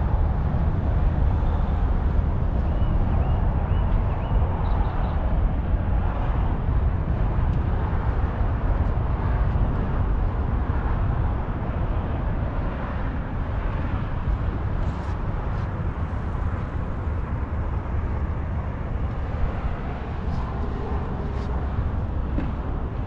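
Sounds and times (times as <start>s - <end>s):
road traffic rumble: 0.0s - 23.0s.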